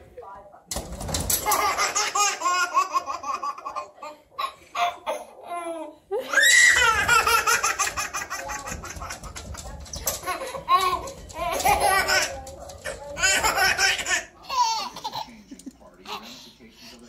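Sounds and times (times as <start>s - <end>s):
toddler laughing: 1.5s - 9.3s.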